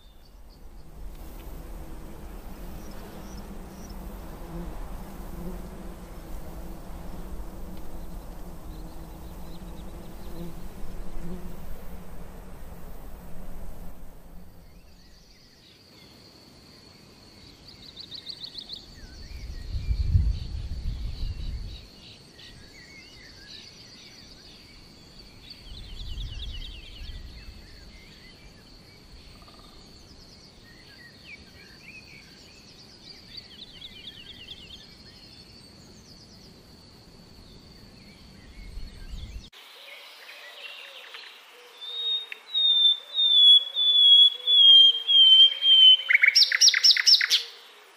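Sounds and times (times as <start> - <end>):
nightingale singing: 38.1 - 47.9
bird chirps: 40.5 - 47.7.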